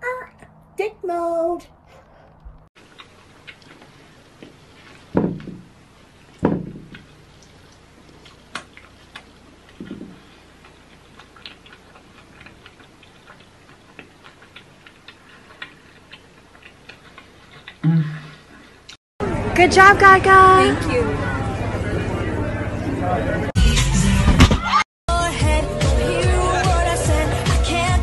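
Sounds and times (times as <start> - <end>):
man chewing crispy bacon: 2.8 - 5.2, 5.8 - 19.0
wet mouth clicks: 8.2 - 19.0.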